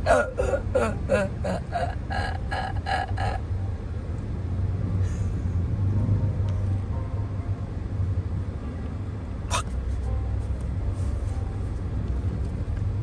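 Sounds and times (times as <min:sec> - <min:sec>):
car engine and road noise: 0:00.0 - 0:13.0
voice making short repeated sounds: 0:09.5 - 0:09.7.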